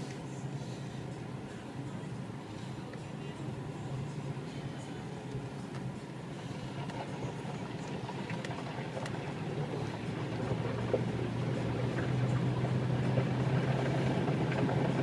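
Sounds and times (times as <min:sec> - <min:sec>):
engine and road drone: 0:00.0 - 0:15.0
water washing under tyres: 0:06.4 - 0:15.0.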